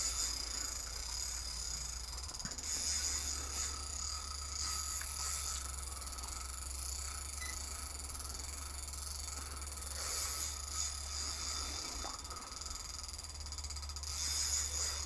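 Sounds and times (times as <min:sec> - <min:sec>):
fishing reel clicking and whirring: 0:00.0 - 0:15.0.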